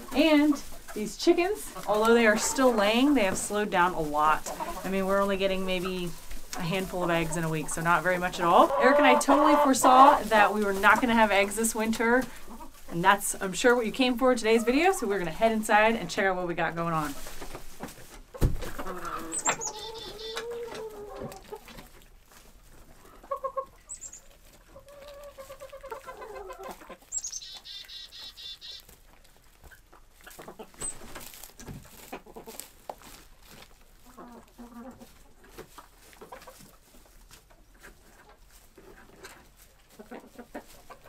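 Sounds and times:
hens clucking and calling: 0.0 - 41.0.

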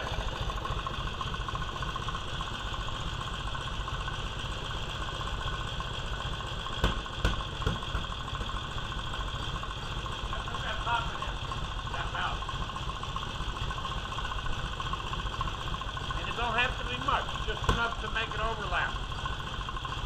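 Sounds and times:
motorcycle engine idling: 0.0 - 20.0.

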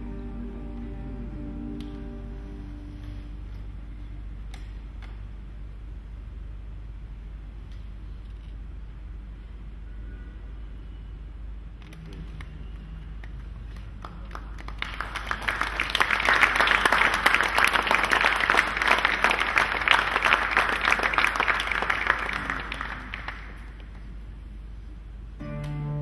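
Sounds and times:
audience applauding: 13.2 - 23.9.

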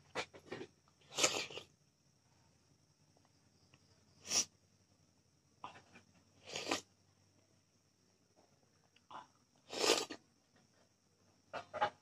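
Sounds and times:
slurping soup: 1.0 - 1.7, 6.4 - 6.9, 9.6 - 10.2.

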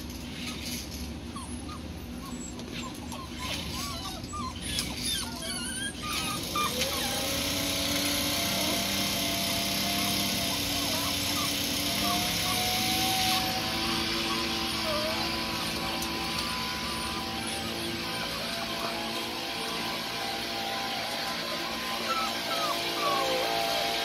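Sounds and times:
puppies whimpering and yipping: 0.1 - 24.0
machine motor whining: 6.1 - 24.0.

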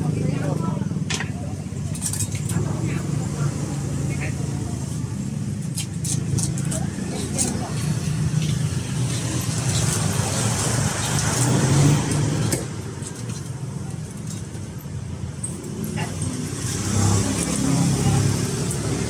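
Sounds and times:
voices: 0.0 - 5.3, 6.4 - 11.9.

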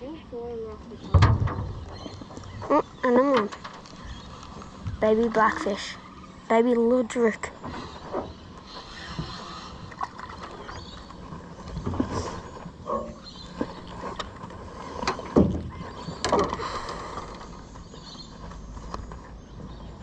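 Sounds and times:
knocks and thumps on boat hull: 15.1 - 16.6.

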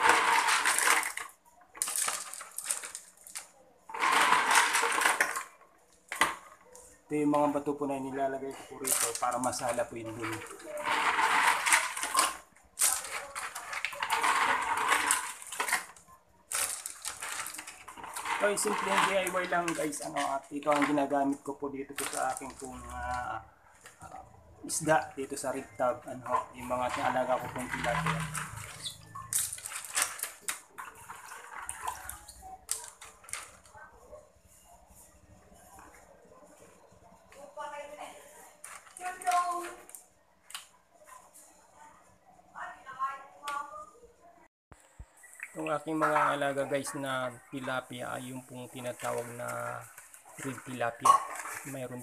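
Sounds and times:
stones rattling in plastic bucket: 0.0 - 6.5, 8.8 - 23.3, 26.2 - 33.6.

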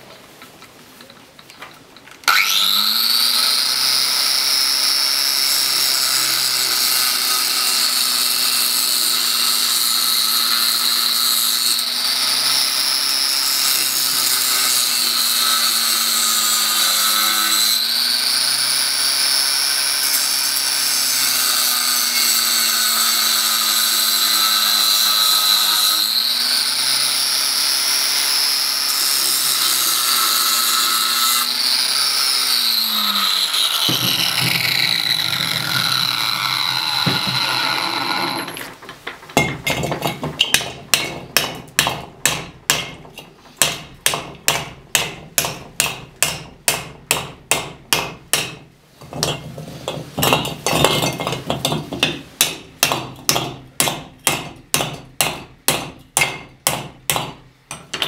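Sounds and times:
angle grinder cutting steel: 2.2 - 38.8.

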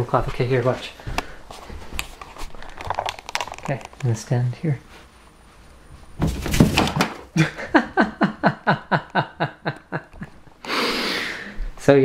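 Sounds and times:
soft thump with rustle: 6.2 - 7.2
person laughing: 7.3 - 10.5.

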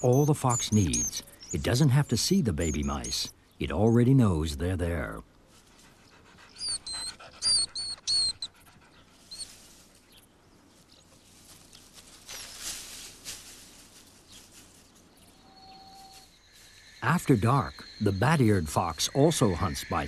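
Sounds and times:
baby mice squeaking: 0.0 - 3.3, 6.6 - 8.6
soft rustle: 5.4 - 6.2, 8.6 - 16.8
fox panting: 5.6 - 10.2.

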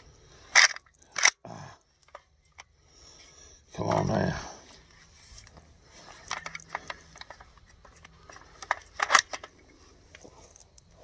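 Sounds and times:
metal gun action clicks: 0.5 - 1.4, 6.2 - 9.7.

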